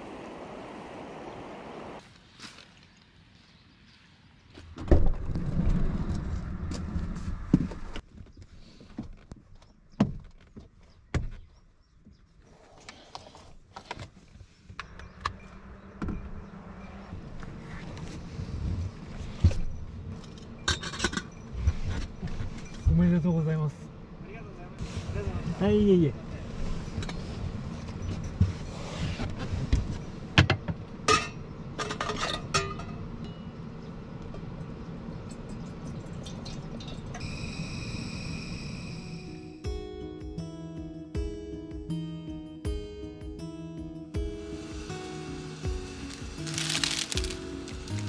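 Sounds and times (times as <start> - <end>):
hard objects clinking: 45.9 - 48.0.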